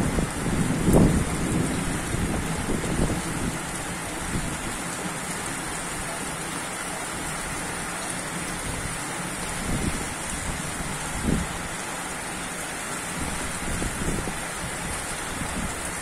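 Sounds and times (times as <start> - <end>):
low thunder rumbles: 0.0 - 4.7
steady rain falling: 0.0 - 16.0.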